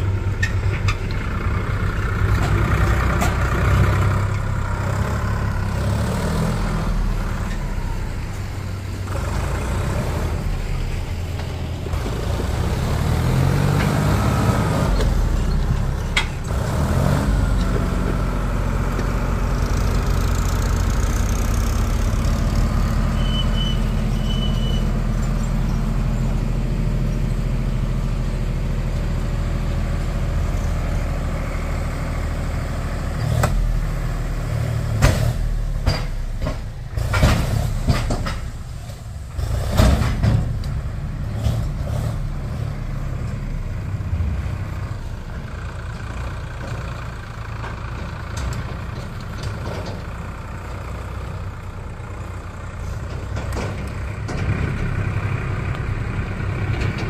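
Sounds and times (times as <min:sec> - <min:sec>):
diesel tractor engine running: 0:00.0 - 0:57.0
mud knocking out of trailer: 0:09.0 - 0:51.4, 0:52.7 - 0:57.0.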